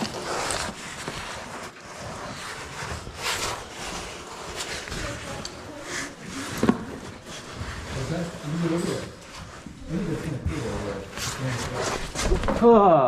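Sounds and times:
clothing scraping against rock: 0.0s - 12.5s.

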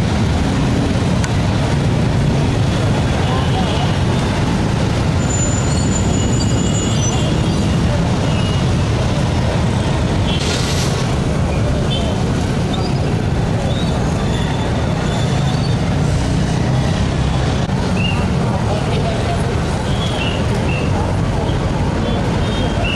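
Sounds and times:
street traffic rumble: 0.0s - 22.9s
short hiss: 10.4s - 11.1s.

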